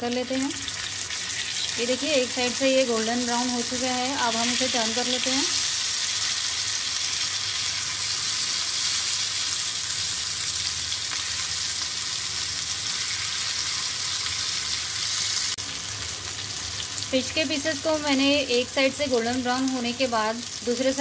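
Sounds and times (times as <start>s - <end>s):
fish sizzling in oil: 0.0s - 21.0s.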